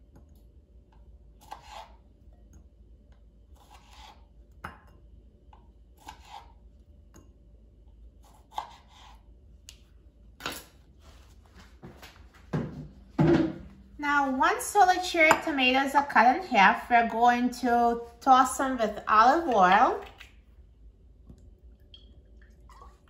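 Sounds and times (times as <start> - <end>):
knife cutting on plastic board: 1.4 - 2.0, 3.6 - 4.2, 6.0 - 6.6, 8.2 - 9.2.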